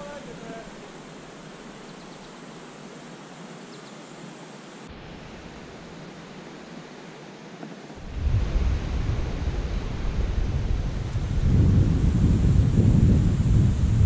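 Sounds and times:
outdoor hiss by river: 0:00.0 - 0:14.0
low rumble: 0:08.0 - 0:14.0.

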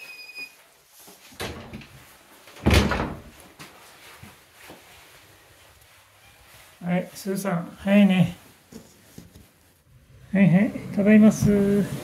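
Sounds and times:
door shutting with bang: 0:02.6 - 0:03.3.

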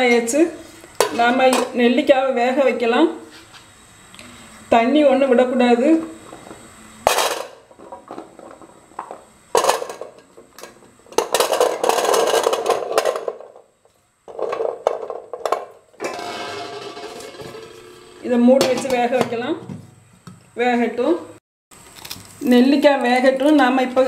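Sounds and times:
berries rattling on metal plate: 0:14.3 - 0:19.2.

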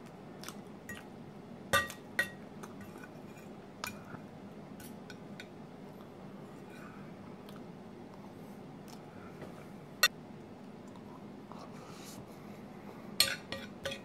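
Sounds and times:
cutlery clinking on ceramic plate: 0:01.8 - 0:03.1, 0:13.2 - 0:14.0.

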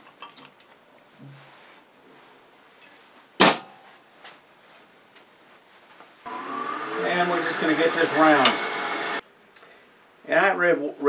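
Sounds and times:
wood lathe belt hardware clack: 0:08.4 - 0:08.7.

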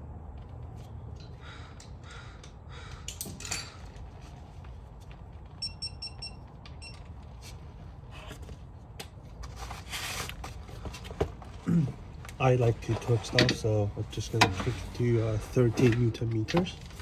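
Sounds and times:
short electronic beeps: 0:05.6 - 0:07.0.

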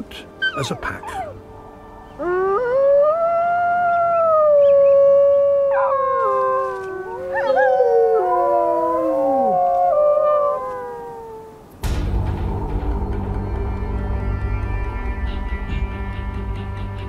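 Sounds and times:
wolves howling: 0:00.3 - 0:01.5, 0:02.1 - 0:11.7.

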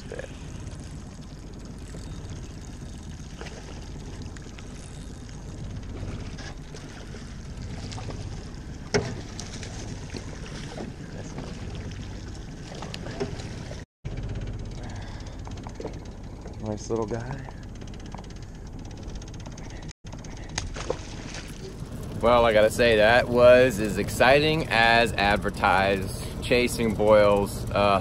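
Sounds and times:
water lapping around boat: 0:00.0 - 0:28.0.

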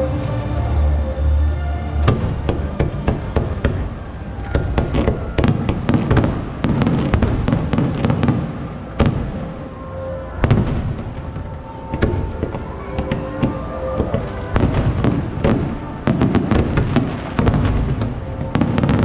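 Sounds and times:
fireworks bangs and crackles: 0:02.0 - 0:19.0.

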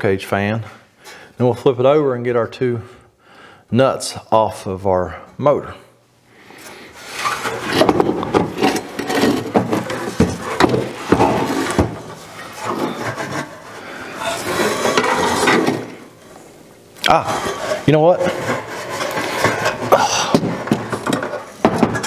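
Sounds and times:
sheet metal scraping on workbench: 0:07.0 - 0:16.4, 0:17.2 - 0:22.0
metal knocks and clunks: 0:07.6 - 0:13.6, 0:18.3 - 0:22.0.

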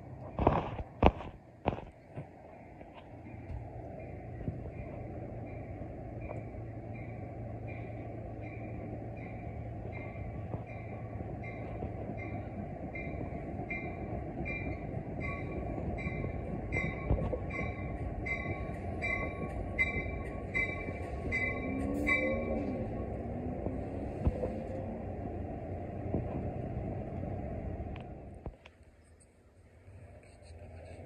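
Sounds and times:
train rumbling: 0:00.0 - 0:31.0
railroad crossing bell ringing: 0:03.3 - 0:23.7.

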